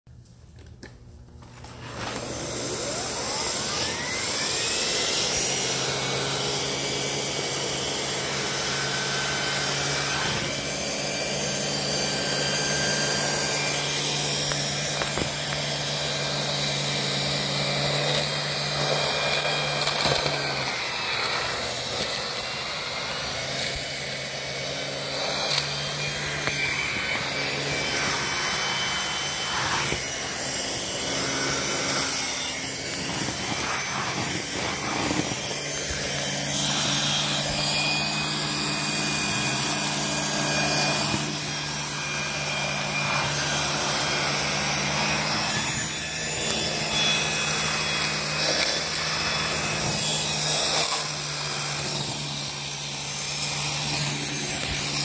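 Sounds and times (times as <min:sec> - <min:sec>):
vacuum cleaner running: 0:00.8 - 0:55.0
vacuum head rubbing on floor: 0:01.4 - 0:07.0, 0:07.6 - 0:39.6.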